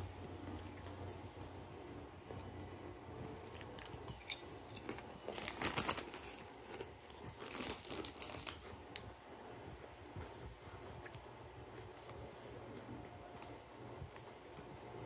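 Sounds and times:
potato chips crunching: 3.4 - 9.1.

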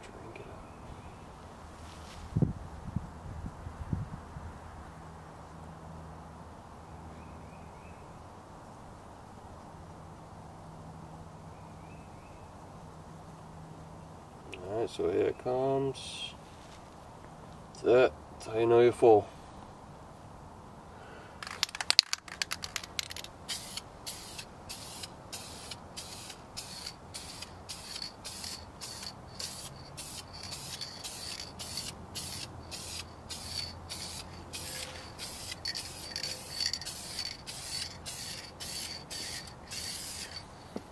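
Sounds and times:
spray can rattling: 21.4 - 40.9
spray paint can hissing: 21.4 - 40.9.

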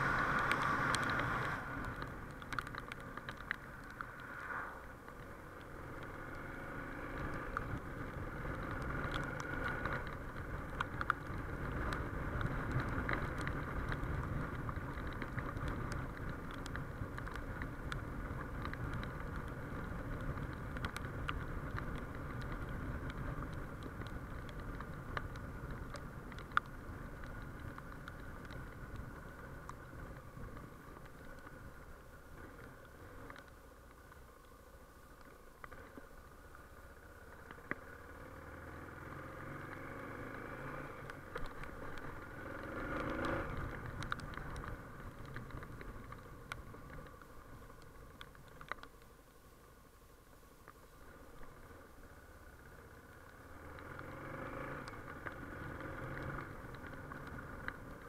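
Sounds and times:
road noise on wet road: 0.0 - 58.0
small ticks: 0.0 - 58.0
motorcycle engine: 37.4 - 46.0, 52.7 - 58.0.

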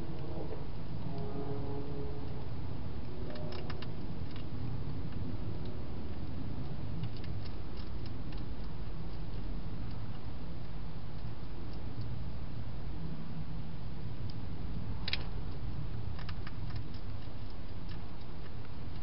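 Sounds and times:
steady low hiss and rumble: 0.0 - 19.0
small clicks of animal feeding: 3.0 - 12.2, 14.2 - 19.0.

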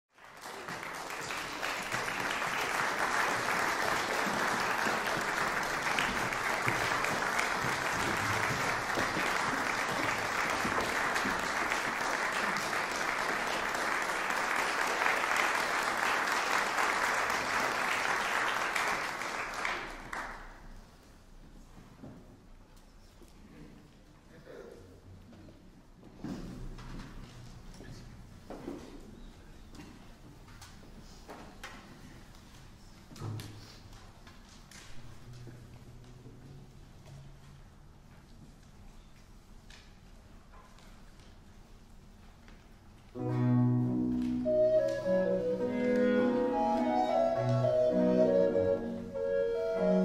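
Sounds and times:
audience applauding: 0.1 - 20.7.

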